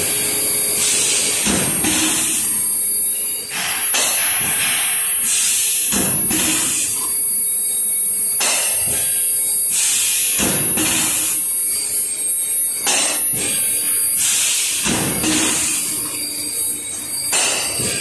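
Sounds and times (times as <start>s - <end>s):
thin high whine: 0.0s - 18.0s
compressed air hissing: 3.5s - 6.0s.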